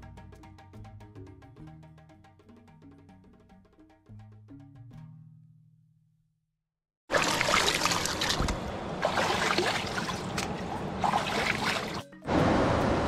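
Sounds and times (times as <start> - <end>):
water splashing and trickling: 7.1 - 12.3.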